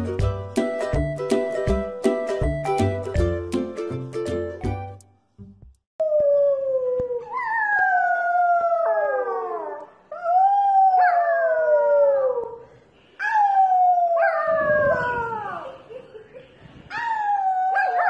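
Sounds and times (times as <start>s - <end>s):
puppy howling: 6.0s - 12.6s, 16.9s - 18.0s.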